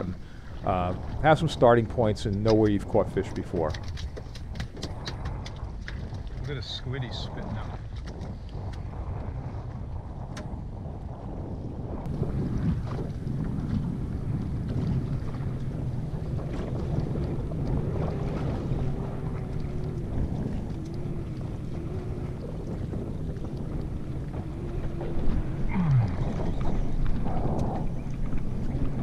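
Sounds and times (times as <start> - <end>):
choppy water washing: 0.0 - 29.0
wind buffeting microphone: 0.0 - 29.0
faint wavering hum: 18.0 - 29.0.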